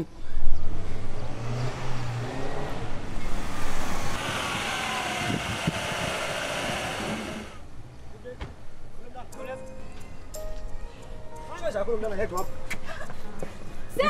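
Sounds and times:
car engine running: 3.4 - 7.6.

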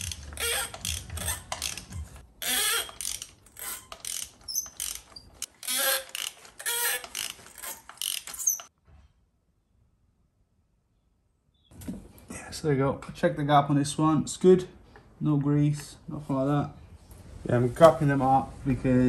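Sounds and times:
ratchet clicking: 0.0 - 8.7.

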